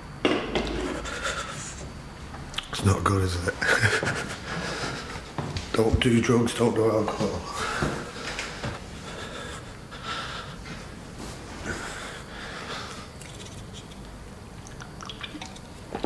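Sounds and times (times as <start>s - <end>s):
man breathing heavily: 0.8s - 2.0s, 3.6s - 5.4s, 7.2s - 13.2s.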